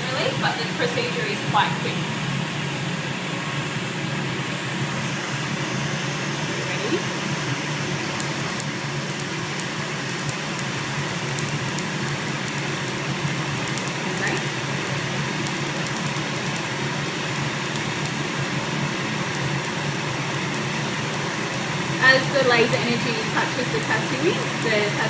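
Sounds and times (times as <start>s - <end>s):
steady fan hum: 0.0s - 25.0s
laser snapping ticks: 8.2s - 25.0s.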